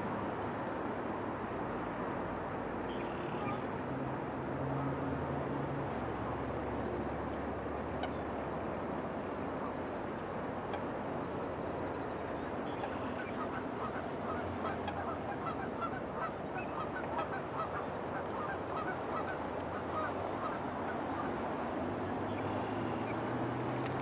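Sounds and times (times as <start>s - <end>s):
steady background noise: 0.0s - 24.0s
water birds calling: 2.8s - 3.7s, 5.9s - 24.0s.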